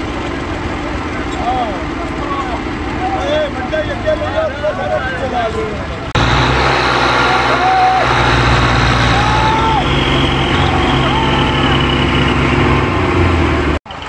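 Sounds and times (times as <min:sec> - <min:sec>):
tractor diesel engine under load: 0:00.0 - 0:14.0
men calling out: 0:01.3 - 0:06.1, 0:07.2 - 0:12.5.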